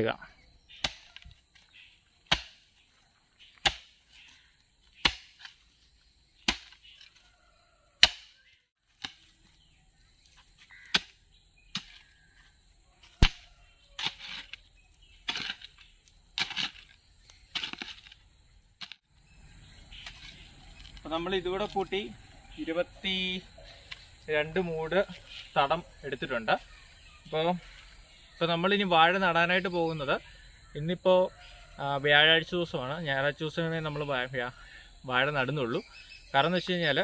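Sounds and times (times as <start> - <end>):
hoe chopping into earth: 0.7 - 1.2, 2.3 - 2.6, 3.6 - 4.0, 5.0 - 5.6, 6.4 - 7.0, 8.0 - 8.4, 10.8 - 12.1, 13.0 - 14.6, 15.2 - 16.9, 17.5 - 18.1
hoe scraping soil: 13.0 - 18.2.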